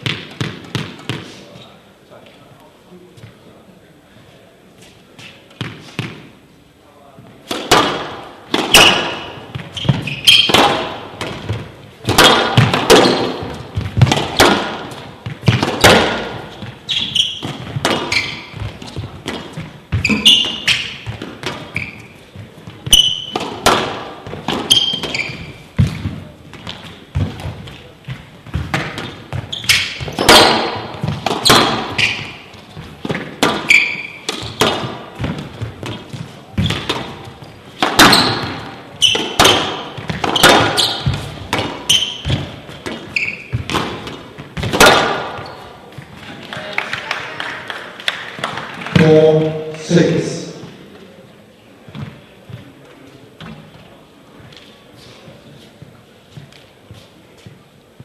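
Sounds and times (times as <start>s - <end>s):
squash ball hitting racquets and walls: 0.0s - 1.8s, 5.2s - 6.5s, 7.3s - 46.5s
shoes squeaking on court floor: 0.0s - 2.4s, 4.7s - 6.4s, 7.1s - 46.4s, 51.8s - 58.0s.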